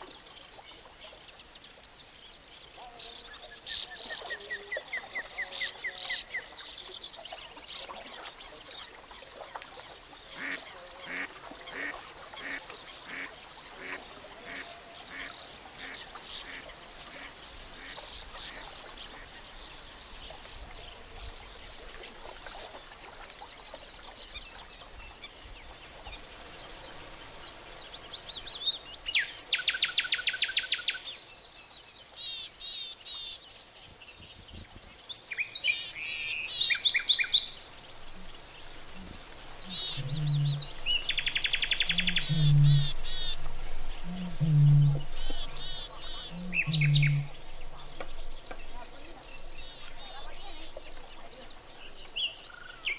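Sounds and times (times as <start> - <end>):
faint bird calls: 35.9 - 52.9
chirping bird calls: 38.7 - 52.9.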